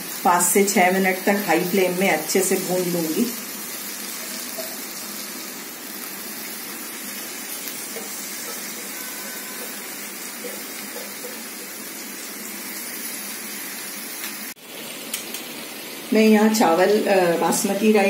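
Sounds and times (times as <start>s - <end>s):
chicken and onions sizzling in oil: 0.0s - 18.0s.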